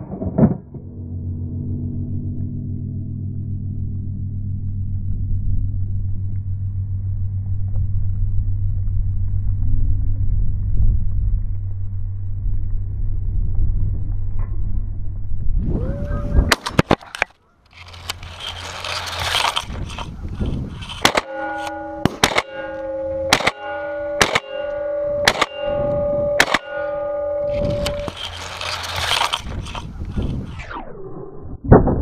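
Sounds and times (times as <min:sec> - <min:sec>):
steady low hum: 0:00.0 - 0:31.9
grass brushing against camera: 0:17.0 - 0:21.1, 0:27.5 - 0:30.6
shotgun shots: 0:20.7 - 0:24.6, 0:25.2 - 0:25.7, 0:26.4 - 0:26.9.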